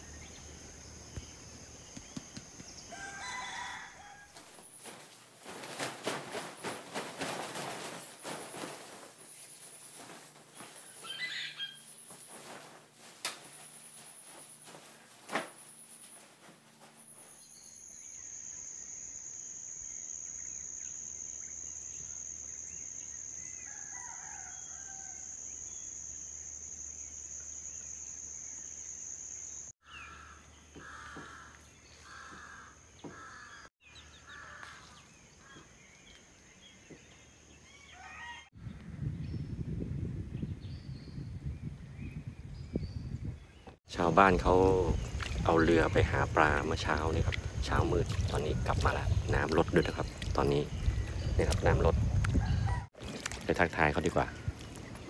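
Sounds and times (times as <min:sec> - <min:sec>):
rooster crowing and clucking: 0:02.8 - 0:04.5, 0:23.6 - 0:25.4, 0:37.6 - 0:38.6, 0:52.2 - 0:53.0
knocks and rustles: 0:04.3 - 0:11.0, 0:12.0 - 0:17.4.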